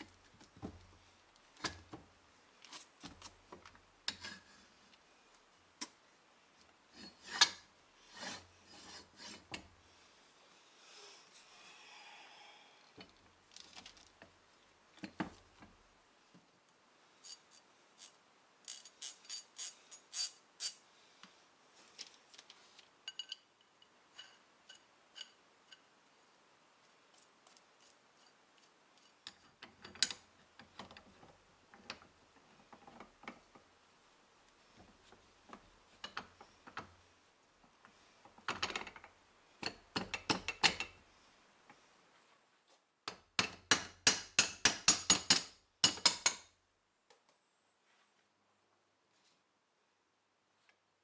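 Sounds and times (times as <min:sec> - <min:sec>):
metallic clicks and clinks: 0:23.0 - 0:25.9.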